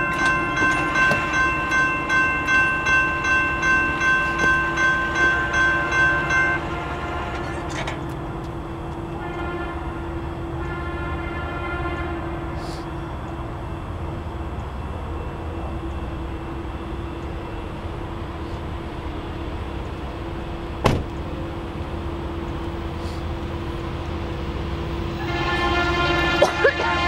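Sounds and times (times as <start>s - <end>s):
train rumbling: 0.0s - 27.0s
locomotive horn: 9.1s - 12.9s, 25.2s - 27.0s.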